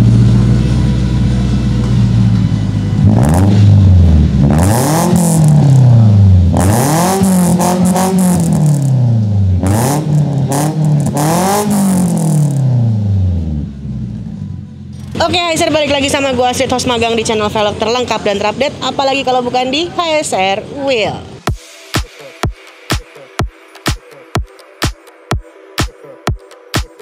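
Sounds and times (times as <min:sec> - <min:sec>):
car exhaust idling and revving: 0:00.0 - 0:19.0.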